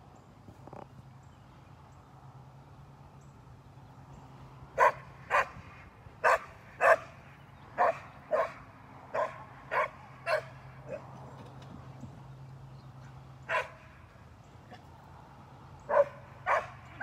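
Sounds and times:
dog barking: 4.8 - 5.6, 6.2 - 7.2, 7.8 - 11.0, 13.5 - 13.8, 15.9 - 17.0.

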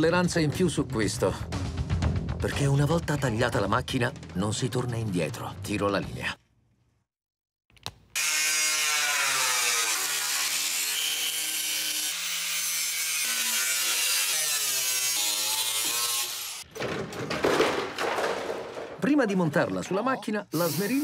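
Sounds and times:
angle grinder on metal: 8.2 - 16.7.

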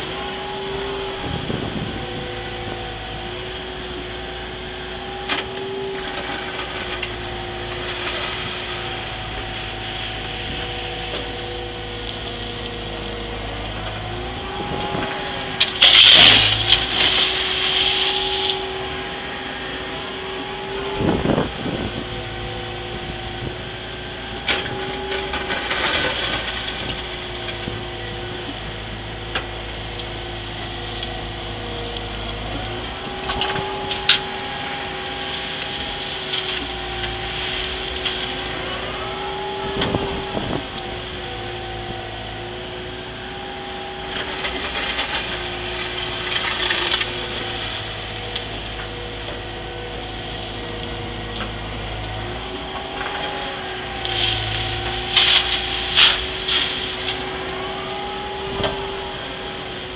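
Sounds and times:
excavator engine and hydraulics: 0.0 - 59.9
loud harsh noise: 14.1 - 23.6.

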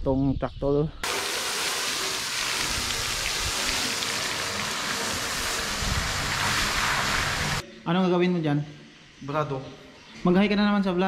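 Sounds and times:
pressure washer spray hiss: 1.0 - 7.6.

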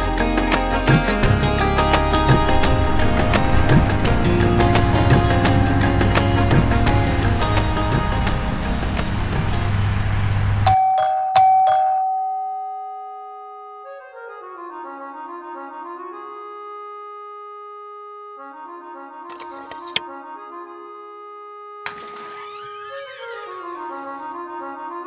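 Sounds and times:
soft slow melody: 0.0 - 21.8
dense film score music: 0.1 - 10.7.

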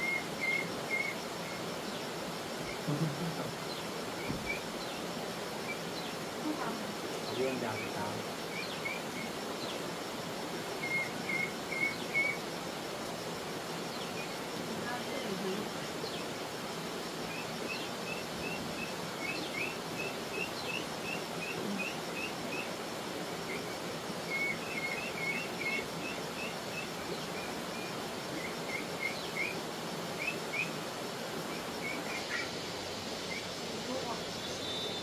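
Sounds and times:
bird chirping: 0.0 - 12.5, 17.2 - 30.8, 31.4 - 35.0
steady outdoor hiss: 0.0 - 35.0.

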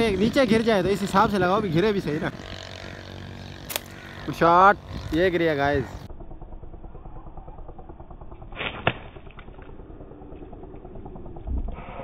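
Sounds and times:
sharp clicks: 3.6 - 4.0.

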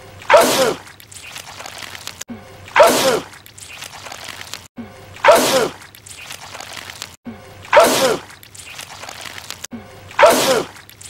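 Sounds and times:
man sneezing: 10.2 - 10.7.

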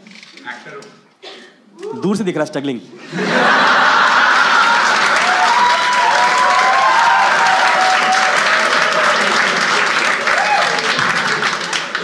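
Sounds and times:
audience applauding: 3.3 - 12.0.

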